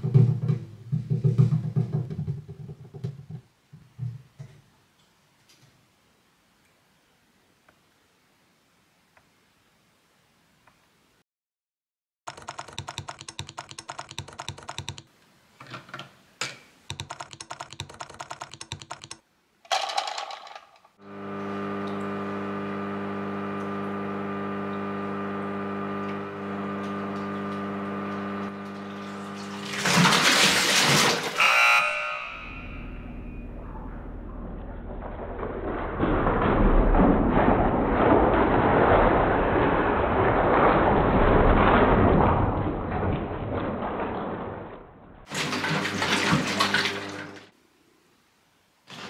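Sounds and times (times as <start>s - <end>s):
rapid clicking: 12.3s - 15.1s, 16.9s - 19.2s
water pump humming: 21.0s - 36.4s, 45.3s - 47.5s.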